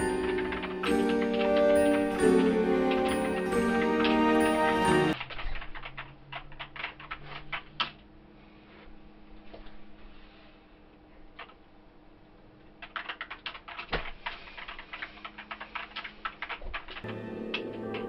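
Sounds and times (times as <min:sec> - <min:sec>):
music: 0:00.0 - 0:05.2, 0:17.0 - 0:18.0
keyboard typing: 0:00.0 - 0:08.0, 0:12.8 - 0:18.0.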